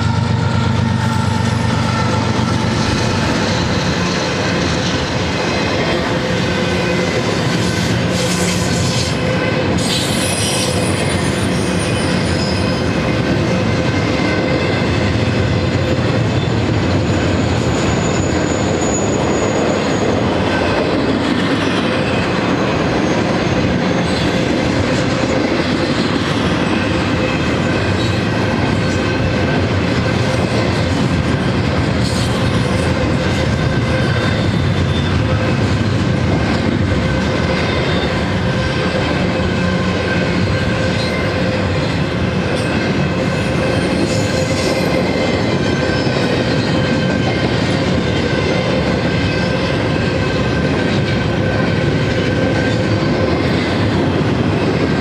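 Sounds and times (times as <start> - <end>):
train wheels rumbling on rails: 0.0 - 55.0
wheel squeal: 16.3 - 20.2.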